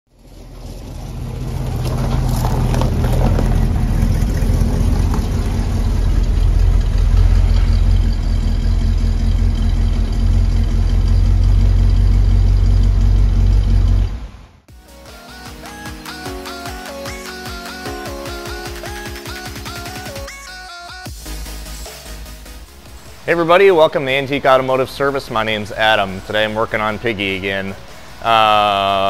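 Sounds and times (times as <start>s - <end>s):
car engine exhaust rumble: 0.1s - 14.7s.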